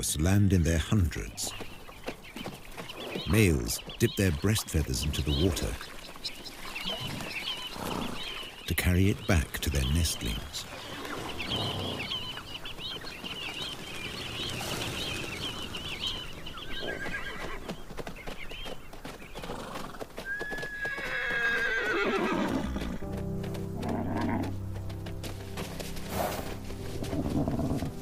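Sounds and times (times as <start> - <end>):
birds chirping: 0.0 - 28.0
hooves thudding on sand: 0.2 - 21.1, 21.9 - 28.0
horse whinnying: 16.8 - 17.6, 19.5 - 23.0, 23.8 - 24.5.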